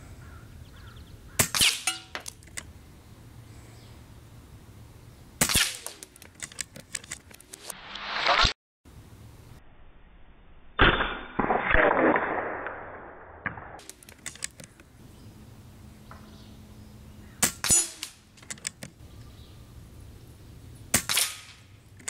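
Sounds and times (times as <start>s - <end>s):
air rifle shots: 1.4s - 2.3s, 5.4s - 7.0s, 17.4s - 18.3s, 20.9s - 21.7s.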